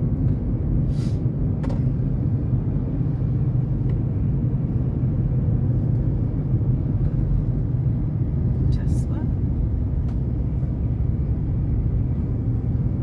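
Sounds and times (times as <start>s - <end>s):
car engine and tyre rumble: 0.0s - 13.0s
brief hiss: 0.9s - 1.2s.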